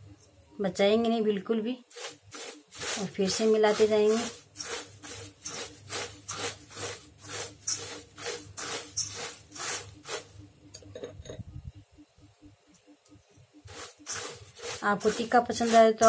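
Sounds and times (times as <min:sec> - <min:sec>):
spoon stirring crispy food in bowl: 0:01.8 - 0:10.4, 0:13.6 - 0:16.0.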